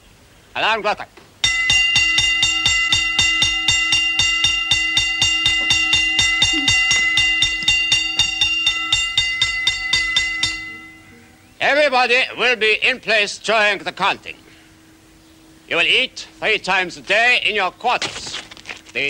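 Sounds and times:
alarm bell ringing fast: 0:01.4 - 0:11.2.

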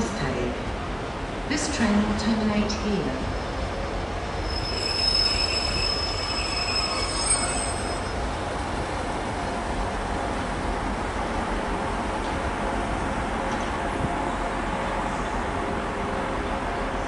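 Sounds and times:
low train rumble: 0:00.0 - 0:17.0
train wheels squealing: 0:04.4 - 0:08.2.

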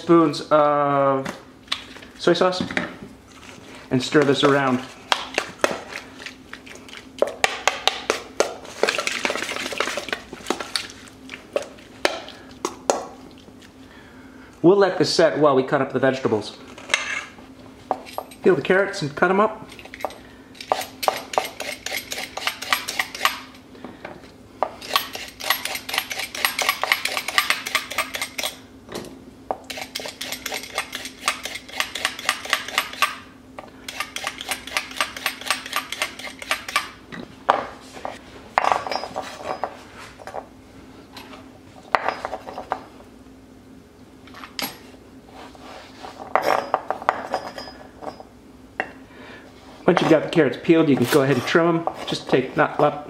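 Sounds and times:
peeler scraping carrots: 0:20.6 - 0:23.4.

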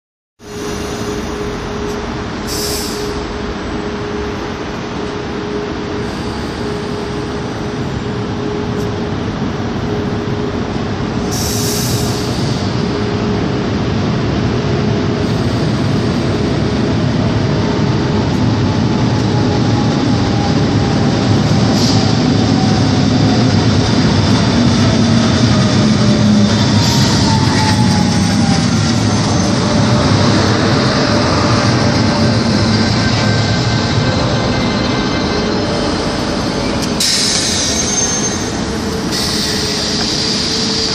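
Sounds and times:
arriving train rumble: 0:00.4 - 0:40.9
standing train humming: 0:00.4 - 0:40.9
train whine falling in pitch: 0:00.4 - 0:40.9
air hissing: 0:02.5 - 0:03.2, 0:37.0 - 0:38.4.

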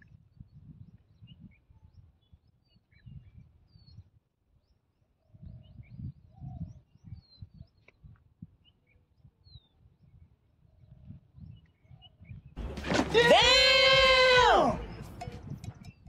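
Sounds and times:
small birds chirping: 0:00.0 - 0:12.6.

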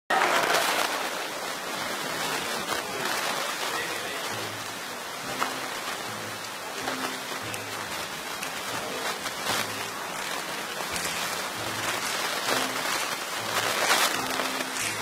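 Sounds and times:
audience applauding: 0:00.1 - 0:15.0
plucked upright bass notes: 0:04.2 - 0:15.0.

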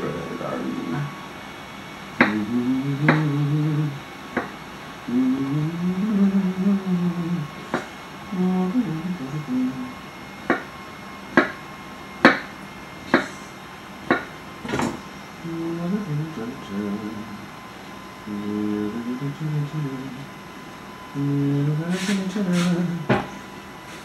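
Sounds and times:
man humming: 0:00.0 - 0:01.2, 0:02.2 - 0:04.0, 0:05.1 - 0:10.0, 0:15.4 - 0:17.4, 0:18.2 - 0:20.3, 0:21.1 - 0:23.4.

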